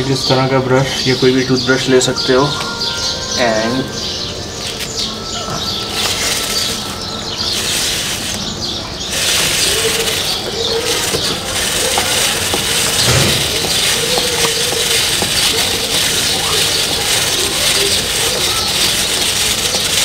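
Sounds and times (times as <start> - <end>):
brush scrubbing chain: 4.6 - 20.0.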